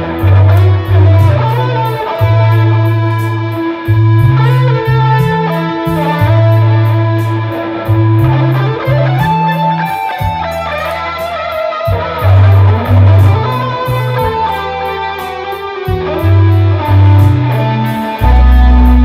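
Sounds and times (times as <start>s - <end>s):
electric guitar lead line: 0.0s - 19.0s
held bass notes: 0.0s - 19.0s
ticking hi-hat beat: 0.0s - 19.0s.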